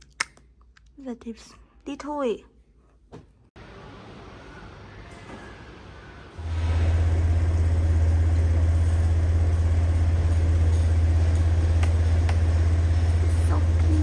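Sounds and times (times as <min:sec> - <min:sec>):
loud low rumble: 0:06.3 - 0:14.0.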